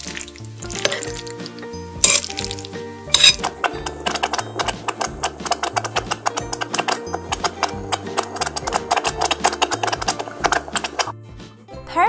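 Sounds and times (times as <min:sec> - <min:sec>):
background music with bass: 0:00.0 - 0:12.0
toy pot clinking: 0:02.0 - 0:11.1.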